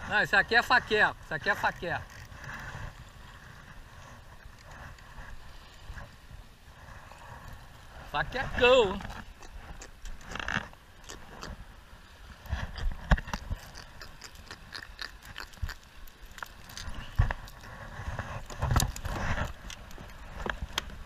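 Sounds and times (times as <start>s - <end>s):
fish handling clicks and knocks: 18.4s - 21.0s.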